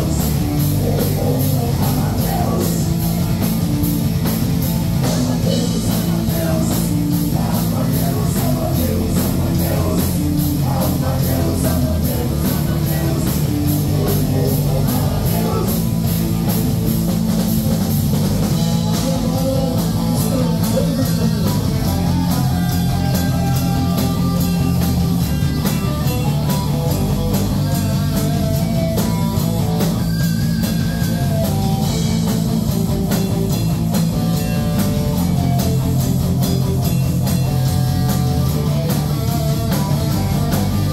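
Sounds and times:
live rock band playing: 0:00.0 - 0:40.9.

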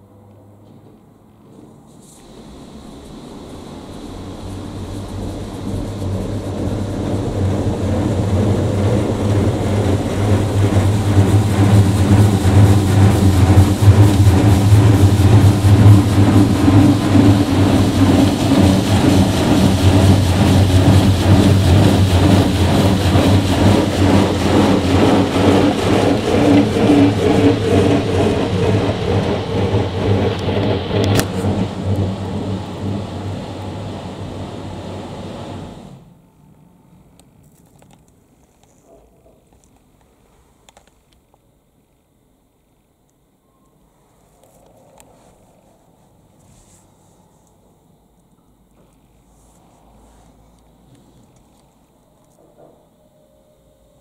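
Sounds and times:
steady low hum: 0:00.0 - 0:54.0
high-pressure water spraying on car: 0:02.2 - 0:35.4.

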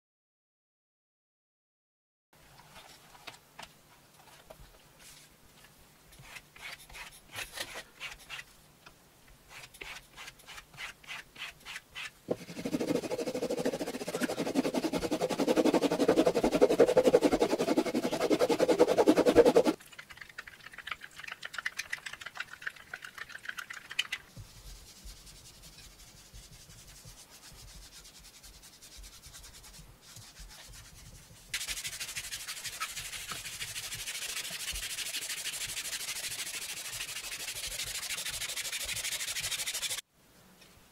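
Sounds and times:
stick stirring thick paste: 0:09.5 - 0:19.8
tool rubbing leather: 0:09.5 - 0:19.8, 0:24.7 - 0:40.0
hissing rub over leather: 0:24.3 - 0:40.0.

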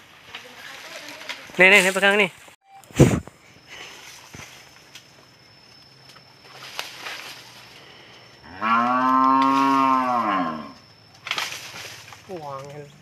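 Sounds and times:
cow mooing: 0:08.5 - 0:10.8.

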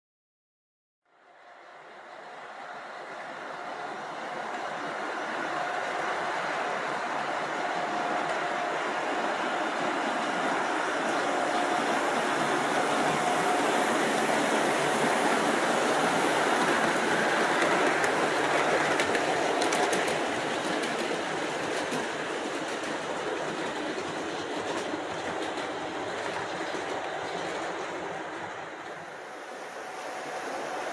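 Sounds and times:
model train rumbling on track: 0:01.1 - 0:30.9
wheels clicking: 0:16.6 - 0:28.1.

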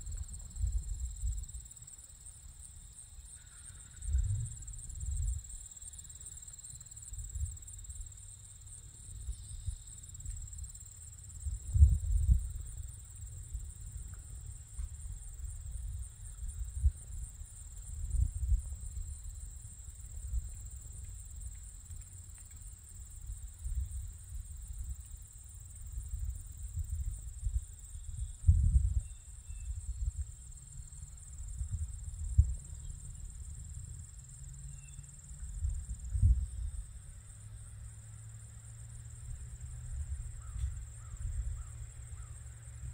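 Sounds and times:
high-pitched insect chorus: 0:00.0 - 0:42.9
wind buffeting microphone: 0:11.5 - 0:14.2, 0:26.0 - 0:30.4.

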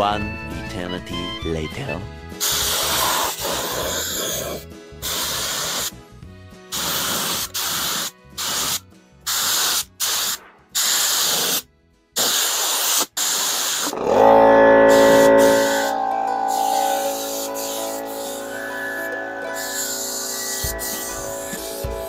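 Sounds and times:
paint spray gun hissing: 0:02.4 - 0:04.4, 0:05.0 - 0:05.9, 0:06.8 - 0:11.6.

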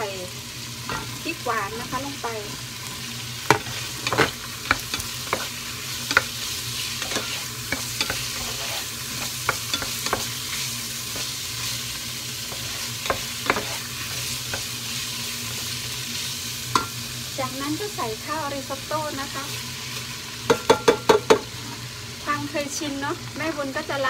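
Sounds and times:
food sizzling in a pot: 0:00.0 - 0:24.0
spatula scraping and knocking pot: 0:03.5 - 0:06.4, 0:07.0 - 0:10.4, 0:12.5 - 0:14.7.

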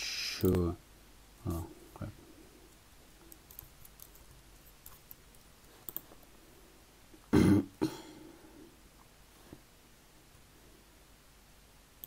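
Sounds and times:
computer mouse clicks: 0:03.2 - 0:06.2.

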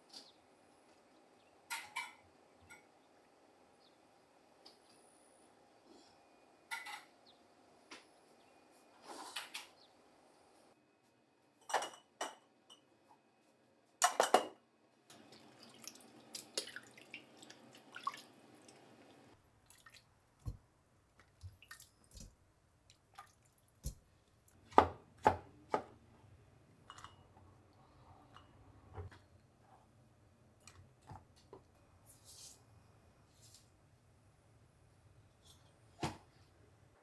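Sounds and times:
water splashing in steel pot: 0:15.2 - 0:18.8, 0:19.6 - 0:20.6.

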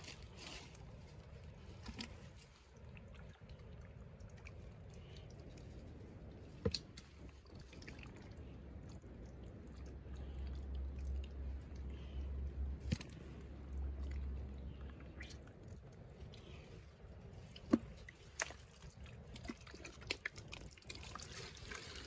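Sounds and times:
hands squelching through wet mud: 0:00.0 - 0:22.0
sharp wet snaps: 0:02.8 - 0:16.6.

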